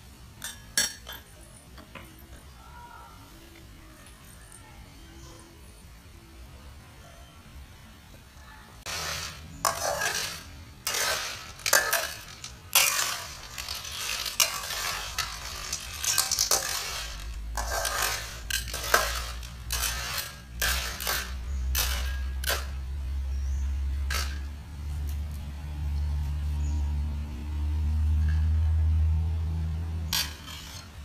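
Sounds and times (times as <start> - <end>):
utensil scraping cookware: 8.8 - 24.6, 30.1 - 31.0.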